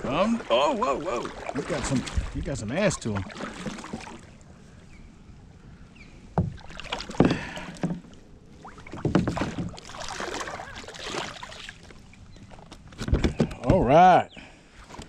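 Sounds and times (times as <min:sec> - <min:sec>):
water splashing: 0:00.0 - 0:04.5, 0:06.4 - 0:12.7.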